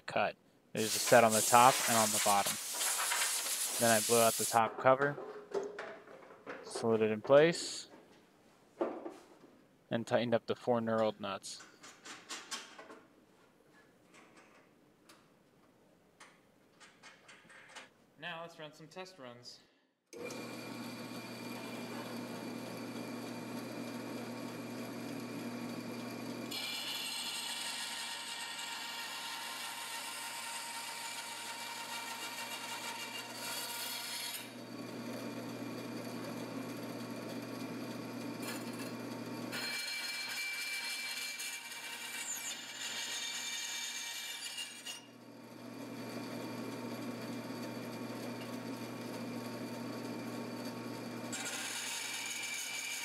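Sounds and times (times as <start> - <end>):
saw blade cutting steel hiss: 0.8 - 4.6
bandsaw motor hum: 20.2 - 43.5, 45.2 - 53.0.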